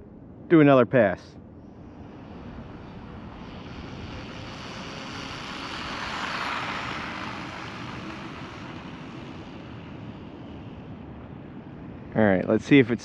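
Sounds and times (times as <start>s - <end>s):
rc truck motor whine: 2.0s - 11.0s.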